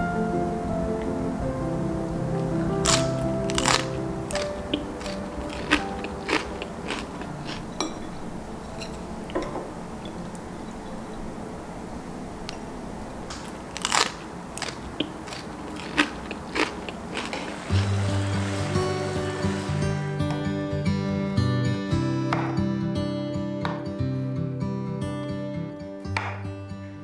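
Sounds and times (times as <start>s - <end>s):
crisp pancake crackling and crunching: 2.8s - 7.6s, 13.3s - 17.9s.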